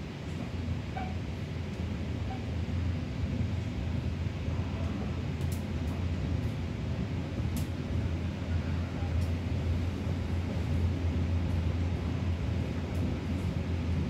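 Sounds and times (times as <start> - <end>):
train rumbling on track: 0.0 - 14.0
faint clicks: 4.8 - 6.5.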